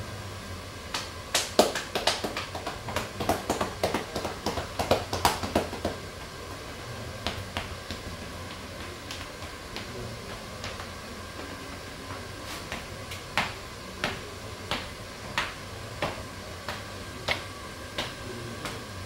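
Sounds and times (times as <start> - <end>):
hands slapping a clothed back: 0.9 - 6.0.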